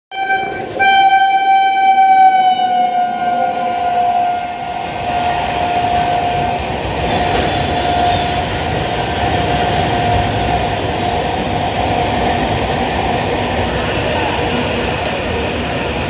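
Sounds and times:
locomotive horn blasts: 0:00.1 - 0:04.7.

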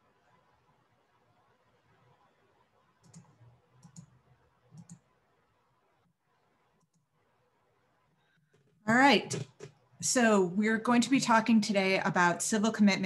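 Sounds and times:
computer mouse clicks: 0:03.0 - 0:05.1, 0:06.8 - 0:07.1.

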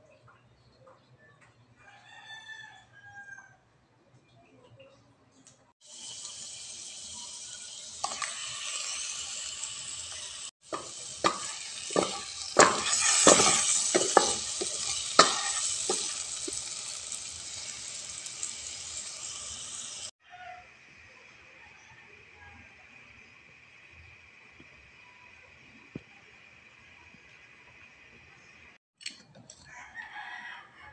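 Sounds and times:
chicken sizzling in a pot: 0:05.8 - 0:28.8
knocks and spatters: 0:10.6 - 0:16.6.

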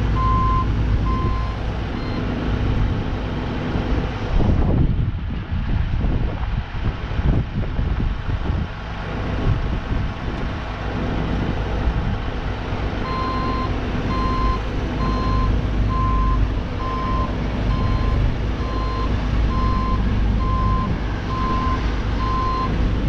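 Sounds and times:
diesel machinery rumbling: 0:00.0 - 0:23.0
backup alarm beeping: 0:00.2 - 0:02.2.

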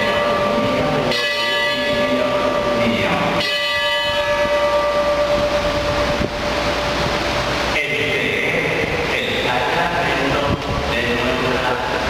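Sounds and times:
altar bells ringing: 0:00.0 - 0:09.5.

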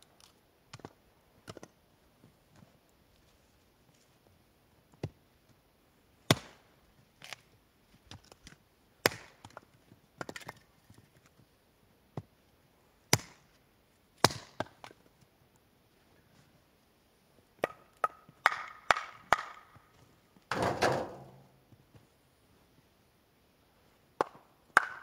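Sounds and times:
axe chopping firewood: 0:06.3 - 0:06.6, 0:09.0 - 0:09.6, 0:13.1 - 0:13.4, 0:14.2 - 0:15.0, 0:17.6 - 0:19.8, 0:20.5 - 0:21.5, 0:24.2 - 0:25.0.

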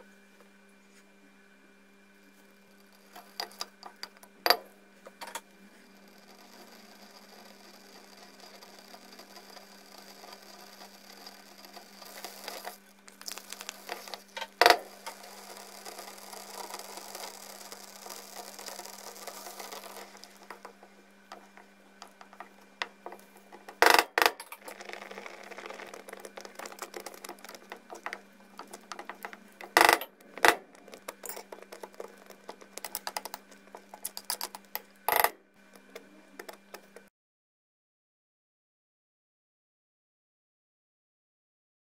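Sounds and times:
milk hissing and frothing: 0:02.3 - 0:04.1, 0:05.5 - 0:23.8, 0:24.6 - 0:35.0.

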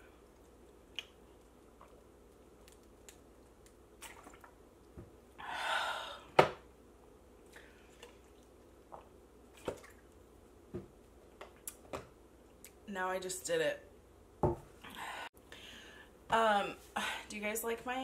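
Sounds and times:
bottle knocking on table: 0:14.4 - 0:14.7.

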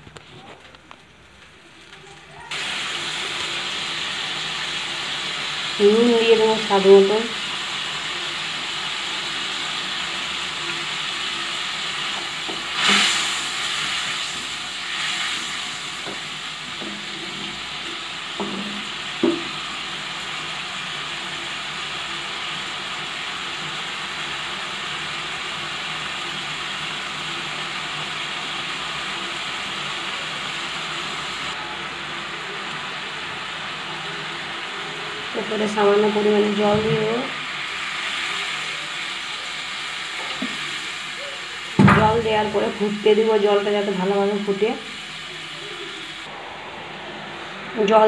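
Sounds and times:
gravy sizzling and bubbling: 0:00.0 - 0:48.0.

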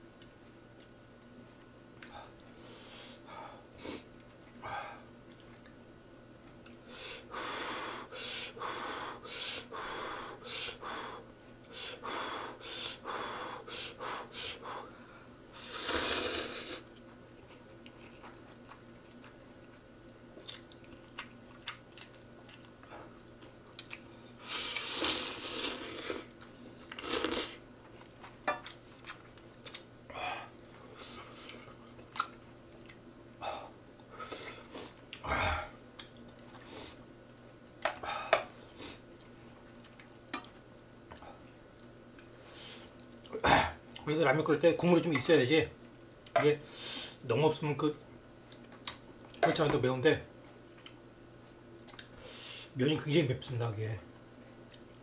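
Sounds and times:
chewing: 0:05.3 - 0:06.8, 0:16.9 - 0:29.9, 0:30.5 - 0:33.0, 0:38.8 - 0:44.0, 0:50.3 - 0:52.2
person slurping noodles: 0:15.6 - 0:16.9, 0:24.5 - 0:26.3, 0:27.0 - 0:27.6.

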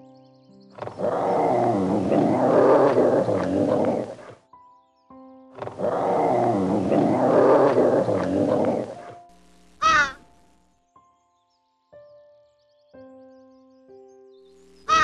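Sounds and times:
raccoon growling and chittering: 0:00.8 - 0:04.4, 0:05.6 - 0:09.2.

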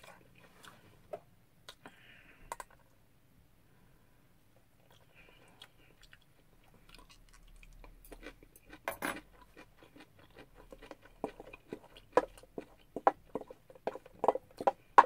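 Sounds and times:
person chewing food: 0:04.8 - 0:15.0.

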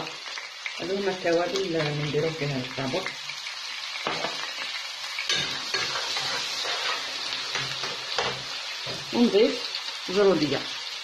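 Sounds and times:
meat and onions sizzling: 0:00.0 - 0:11.0.

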